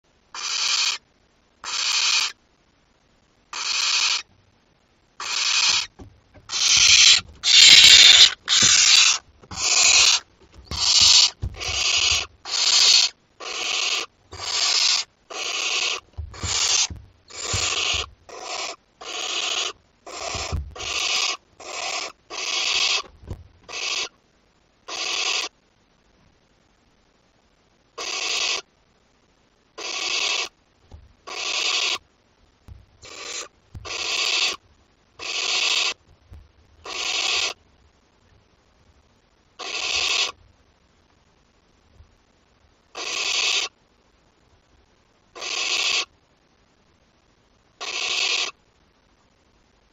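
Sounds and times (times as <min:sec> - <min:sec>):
owl chicks hissing calls: 0:00.3 - 0:01.0, 0:01.6 - 0:02.4, 0:03.5 - 0:04.3, 0:05.2 - 0:24.2, 0:24.9 - 0:25.6, 0:28.0 - 0:28.7, 0:29.8 - 0:30.6, 0:31.2 - 0:32.0, 0:33.0 - 0:34.6, 0:35.2 - 0:36.1, 0:36.8 - 0:37.6, 0:39.6 - 0:40.4, 0:42.9 - 0:43.8, 0:45.4 - 0:46.1, 0:47.8 - 0:48.6.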